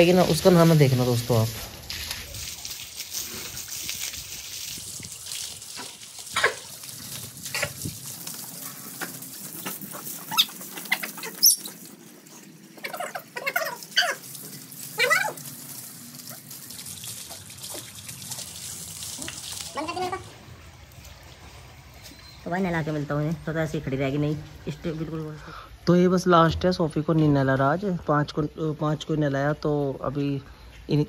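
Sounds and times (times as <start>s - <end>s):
water spraying from hose: 0.0s - 25.6s
dog whining and yelping: 15.0s - 15.4s.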